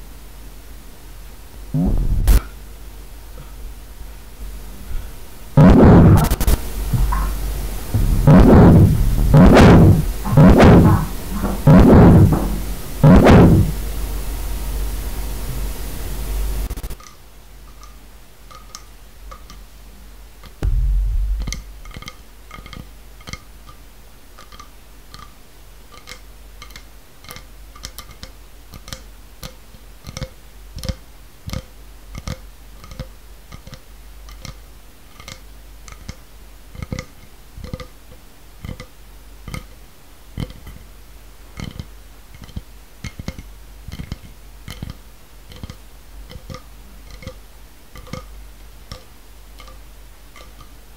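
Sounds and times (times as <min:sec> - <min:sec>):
heavy low thump: 0:01.8 - 0:02.5, 0:05.6 - 0:13.8, 0:20.6 - 0:22.2
wet mouth clicks and pops: 0:26.0 - 0:34.6, 0:35.2 - 0:36.2, 0:38.6 - 0:38.9, 0:39.5 - 0:39.7, 0:41.6 - 0:47.4, 0:48.0 - 0:48.3, 0:48.9 - 0:49.8.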